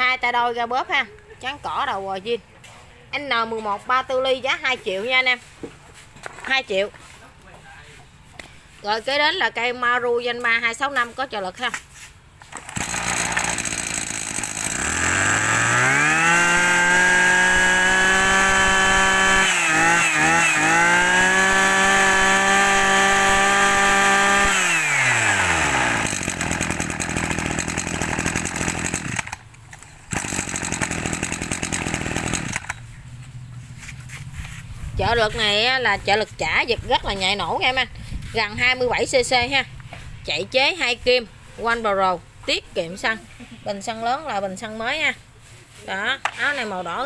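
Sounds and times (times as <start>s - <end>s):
brush cutter engine revving: 12.4s - 33.0s.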